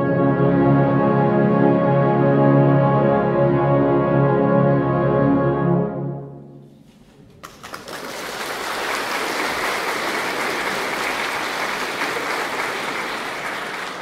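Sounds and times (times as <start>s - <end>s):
audience applauding: 7.3s - 14.0s.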